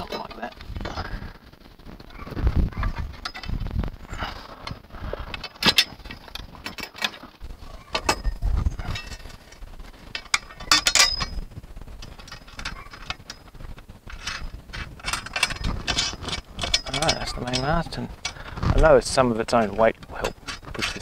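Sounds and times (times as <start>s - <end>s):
metal clamp clicking and clinking: 10.2s - 11.4s, 14.1s - 18.4s.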